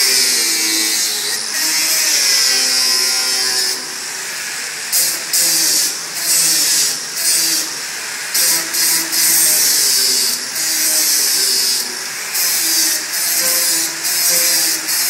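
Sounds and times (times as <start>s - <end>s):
angle grinder grinding steel: 0.0s - 15.0s.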